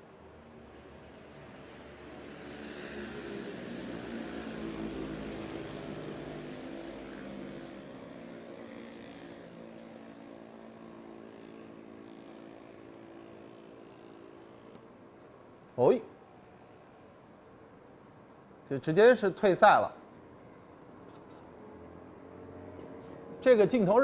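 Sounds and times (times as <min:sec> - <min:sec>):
motorcycle engines revving high: 0:02.0 - 0:15.1.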